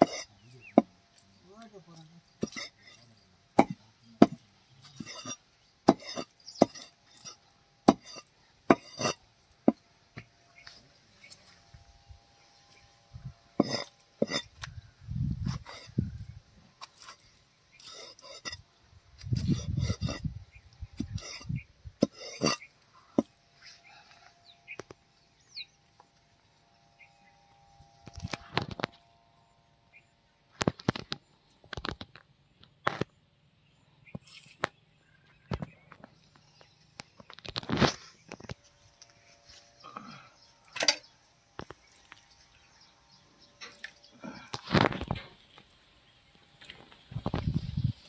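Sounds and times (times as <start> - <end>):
cleaver chopping on wooden block: 3.6 - 4.4, 7.9 - 9.1
knife chopping on wooden block: 3.6 - 4.4.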